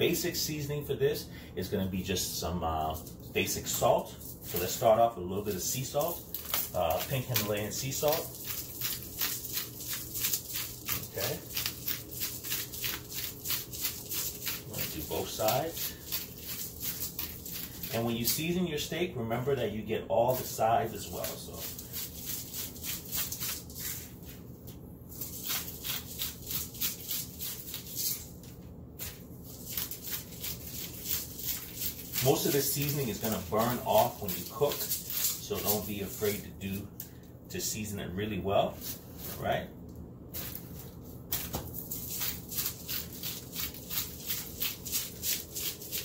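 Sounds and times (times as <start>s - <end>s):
salt grinder crunching: 2.8s - 18.6s, 20.3s - 24.1s, 25.1s - 36.4s, 40.4s - 46.0s.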